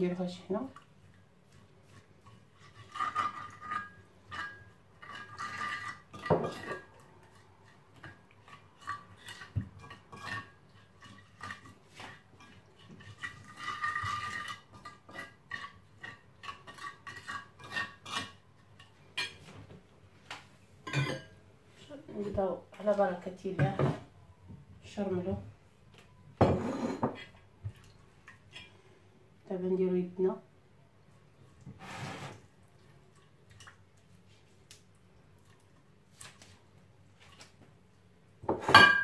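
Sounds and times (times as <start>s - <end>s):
spoon scraping ceramic plate: 1.9s - 19.5s, 26.4s - 27.3s.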